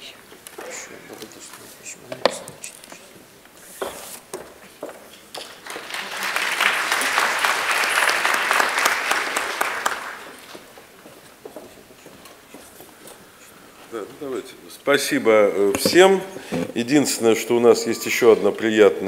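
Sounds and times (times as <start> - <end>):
audience applause: 5.4 - 10.5.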